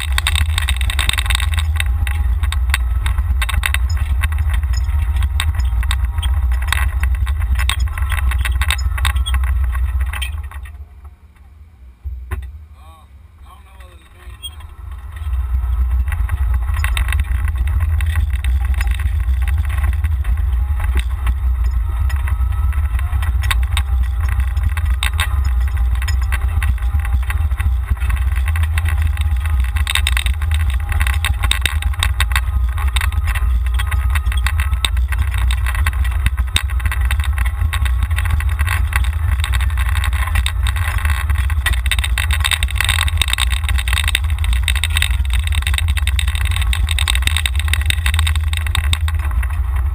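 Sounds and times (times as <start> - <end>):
rattles and knocks: 0.0 - 12.6, 13.7 - 49.9
golf cart running whine: 0.0 - 49.9.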